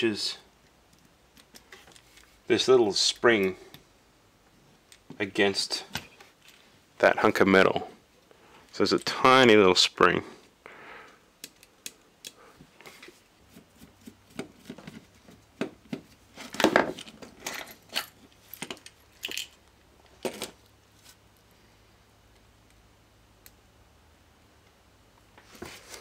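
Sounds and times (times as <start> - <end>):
plastic parts clicking and snapping: 11.4 - 12.4.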